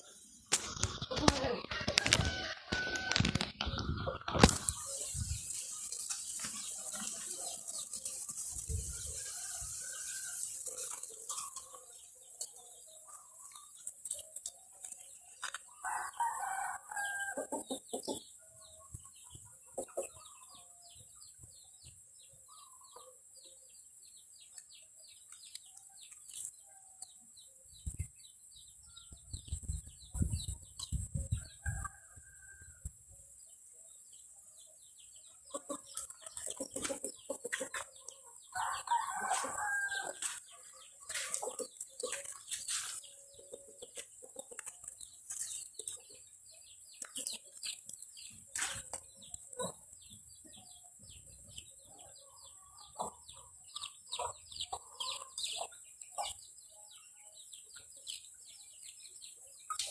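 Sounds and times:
chickens clucking: 0.0 - 15.8, 17.0 - 23.6, 34.6 - 59.9
rooster crowing: 1.8 - 3.4, 15.8 - 17.4, 38.5 - 40.4.

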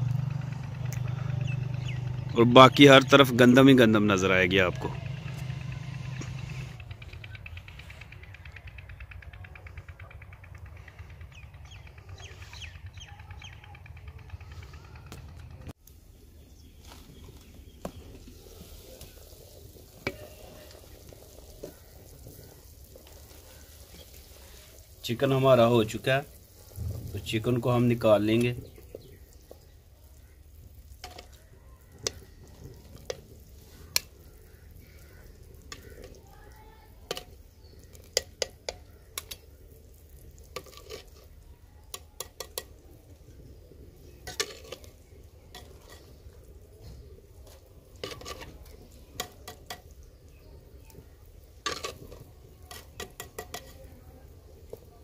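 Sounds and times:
metal tongs clinking on pots: 51.6 - 54.0.

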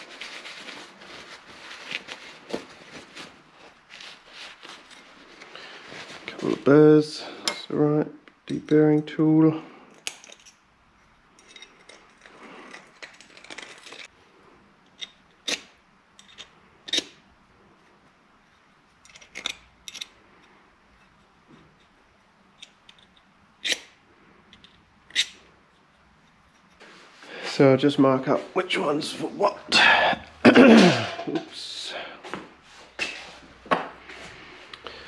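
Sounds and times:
metal parts clinking: 9.9 - 10.6, 11.4 - 14.1, 19.0 - 20.2.

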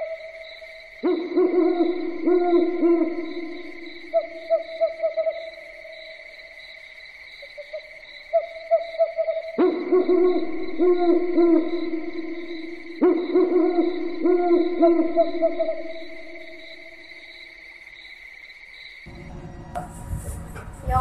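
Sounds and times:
owl hooting: 1.0 - 5.4
high-pitched drone: 19.1 - 21.0.

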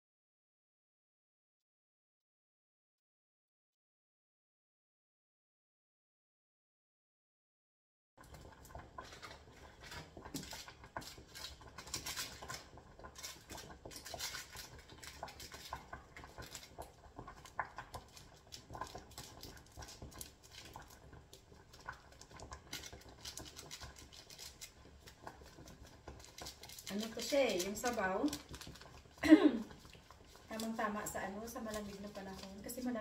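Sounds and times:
plastic sachet crinkling: 9.0 - 33.0.

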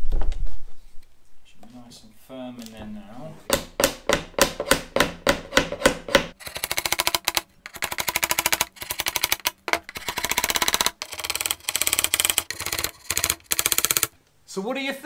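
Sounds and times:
hammer tapping pins into wood: 3.5 - 14.1.

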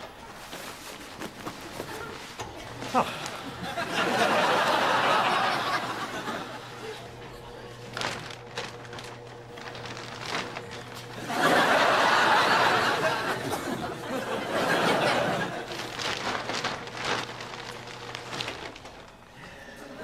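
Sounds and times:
audience laughing: 2.6 - 8.0, 11.0 - 16.2
plastic bag crackling: 5.3 - 11.3, 13.3 - 19.4.

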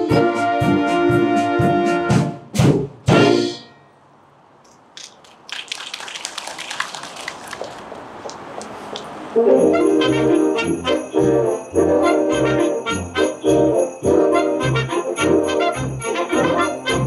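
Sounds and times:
wind band chords: 0.0 - 2.2, 9.3 - 17.0
audience applause: 5.0 - 9.0
brass playing: 9.4 - 17.0
sleigh bells: 9.4 - 17.0.

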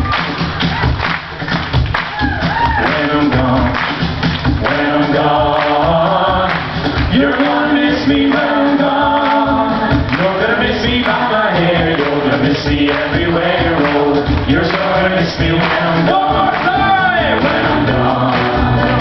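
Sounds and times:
hand claps keeping the beat: 0.0 - 19.0
group singing in harmony: 2.8 - 19.0.

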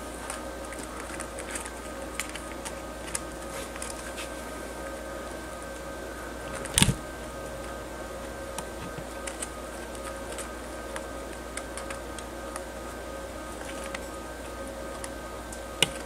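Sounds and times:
small animals chewing petals: 0.0 - 16.0
steady hum: 0.0 - 16.0
small clicks and rustles: 0.2 - 4.4.

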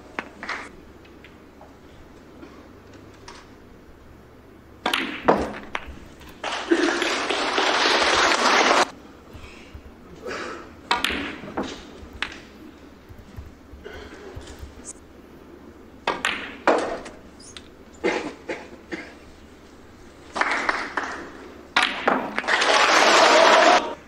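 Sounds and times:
snooker balls clicking: 0.0 - 1.8, 4.8 - 15.0, 16.0 - 18.0, 20.2 - 23.4
audience applause: 6.4 - 8.9, 22.4 - 24.0.

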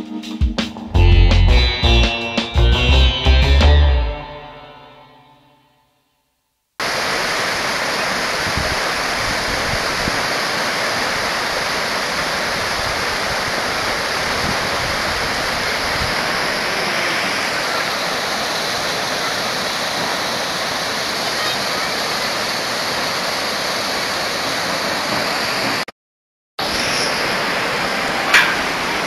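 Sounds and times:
river rushing over rocks: 6.8 - 25.8, 26.6 - 29.0.

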